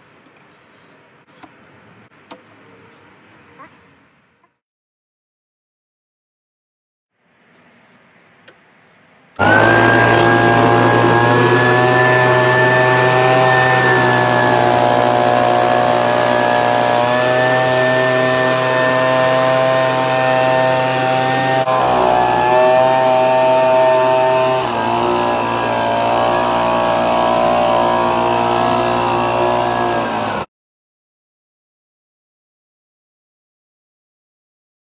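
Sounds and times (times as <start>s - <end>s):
fan whine: 9.4s - 30.5s
leaf blower engine at high throttle: 9.4s - 30.5s.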